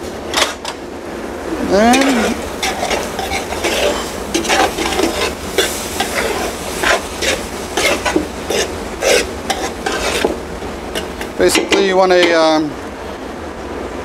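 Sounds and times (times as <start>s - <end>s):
onions sizzling: 1.5s - 12.7s
metal spoon scraping stockpot: 2.0s - 10.4s.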